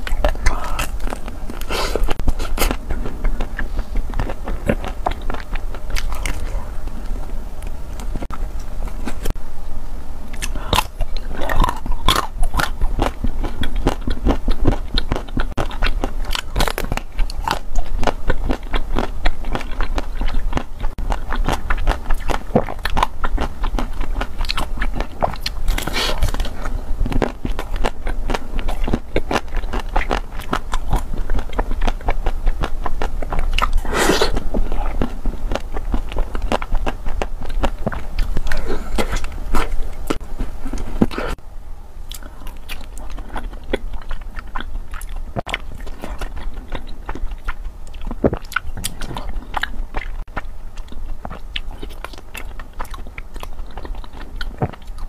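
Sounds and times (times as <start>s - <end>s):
crunching ice cream bars: 0.0s - 9.3s, 10.4s - 41.2s
low steady hum: 0.0s - 55.0s.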